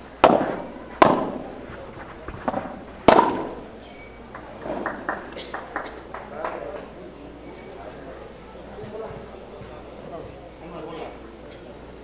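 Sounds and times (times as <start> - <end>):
padel ball racket hits: 0.2 - 3.6.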